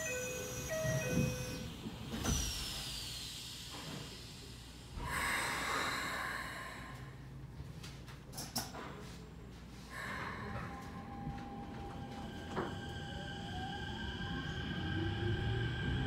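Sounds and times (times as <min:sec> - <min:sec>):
train humming: 0:09.9 - 0:16.0.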